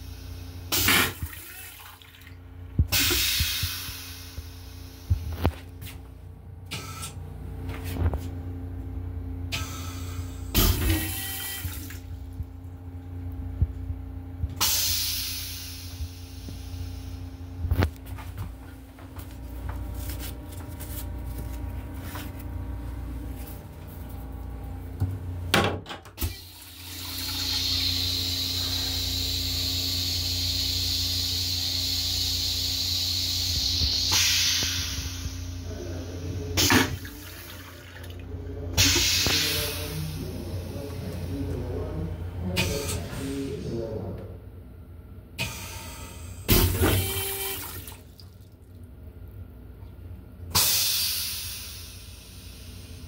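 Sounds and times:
toilet flushing: 0:00.0 - 0:05.2, 0:09.5 - 0:12.2, 0:26.2 - 0:41.4, 0:46.5 - 0:48.7
steady low hum: 0:00.0 - 0:53.0
toilet mechanism clunk: 0:10.5 - 0:12.1, 0:25.5 - 0:27.9, 0:36.6 - 0:37.6, 0:46.5 - 0:47.6.

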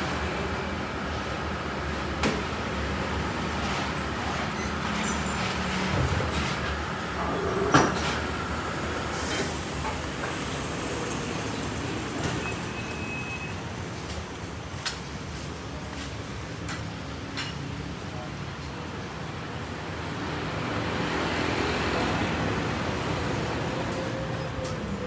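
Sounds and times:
knocks and clanks of tyres and tools: 0:02.1 - 0:13.2, 0:16.6 - 0:17.7.

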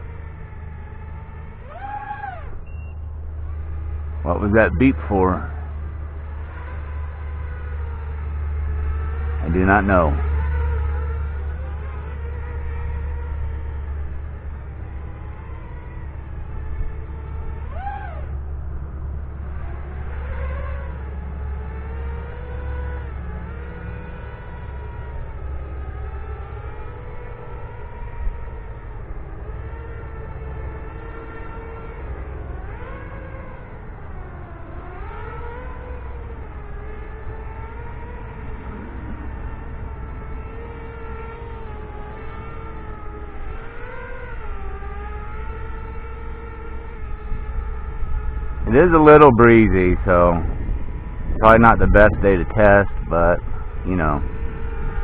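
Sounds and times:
quadcopter propellers whining: 0:00.0 - 0:55.0
wind rumble on microphone: 0:00.0 - 0:55.0.

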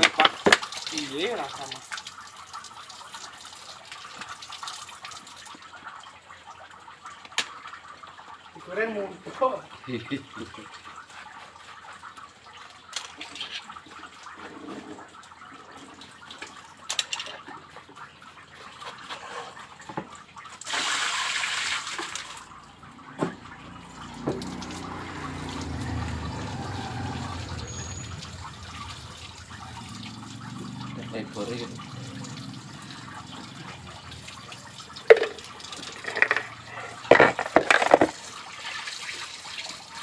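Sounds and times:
water trickling and splashing: 0:00.0 - 0:40.0
rush of water: 0:23.8 - 0:40.0.

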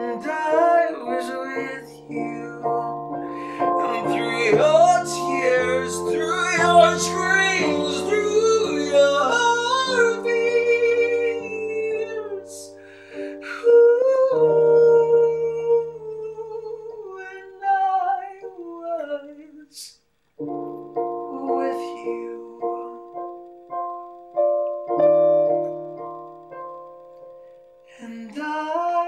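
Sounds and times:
digital piano chords: 0:00.0 - 0:19.2, 0:20.3 - 0:29.0
man singing a slow ballad: 0:00.0 - 0:19.9, 0:21.3 - 0:23.1, 0:27.9 - 0:29.0
singer breathing: 0:03.3 - 0:03.8, 0:12.8 - 0:13.4.

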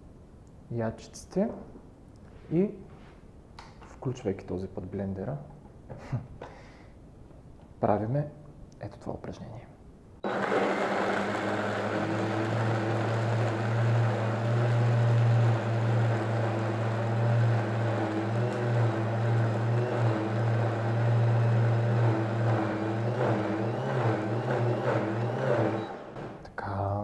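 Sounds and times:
blender whirring: 0:10.2 - 0:26.4.

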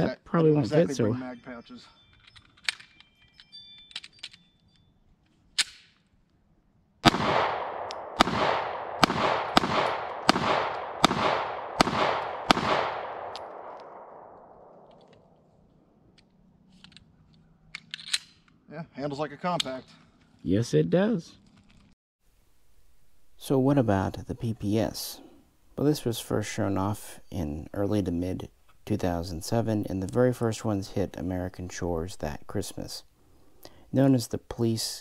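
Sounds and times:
pistol shots with echo: 0:07.0 - 0:14.8.

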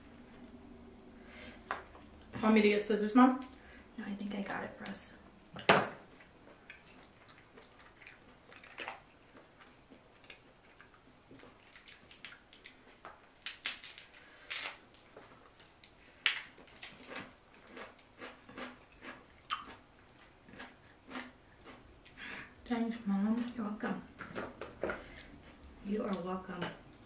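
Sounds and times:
eating sounds: 0:05.6 - 0:13.1, 0:15.2 - 0:22.6
crab shell cracking: 0:11.8 - 0:14.8, 0:15.7 - 0:18.1.

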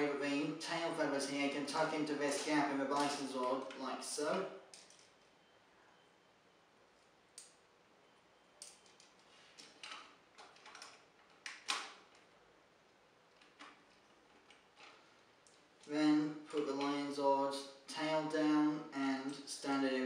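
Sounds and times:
plastic parts clicking: 0:03.0 - 0:03.8, 0:08.6 - 0:12.3.

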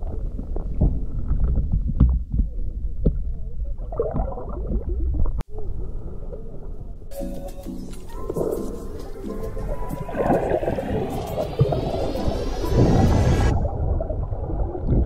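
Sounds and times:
underwater rumble of moving water: 0:00.0 - 0:07.1, 0:09.6 - 0:15.0.

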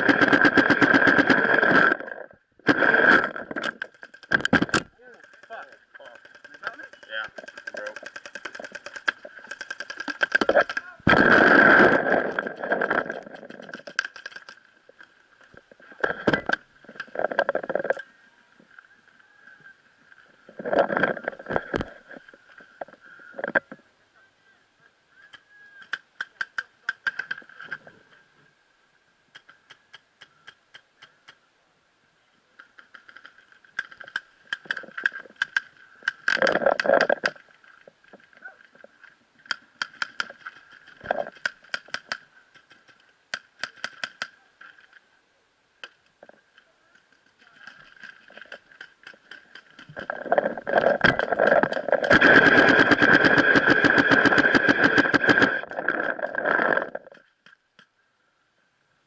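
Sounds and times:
paintball markers firing: 0:04.0 - 0:10.9, 0:41.4 - 0:44.4.

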